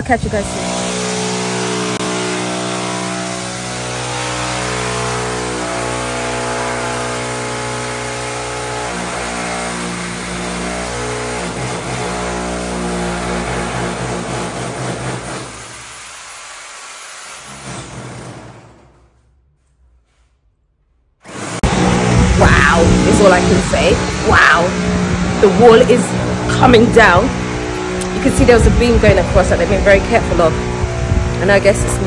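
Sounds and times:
motor humming: 21.2s - 32.0s.

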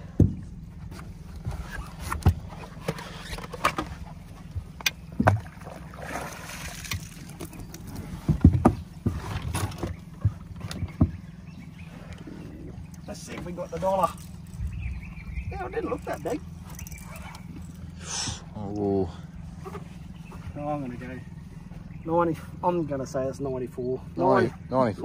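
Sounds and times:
knocks and clunks on a boat: 0.0s - 17.8s
steady low hum: 0.0s - 25.0s.

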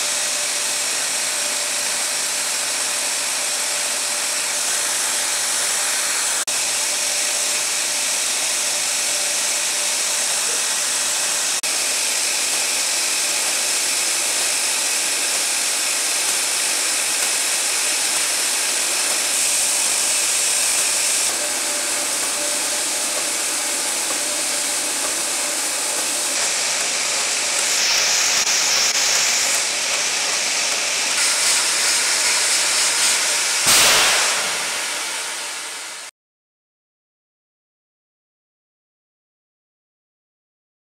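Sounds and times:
sheet-cutting machine hissing and humming: 0.0s - 36.1s
rotary blade slitting sheet: 2.8s - 35.5s.

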